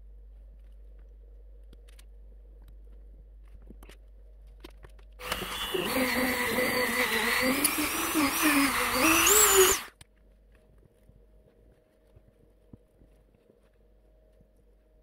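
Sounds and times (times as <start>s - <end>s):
rotary tool grinding metal: 5.2s - 9.9s.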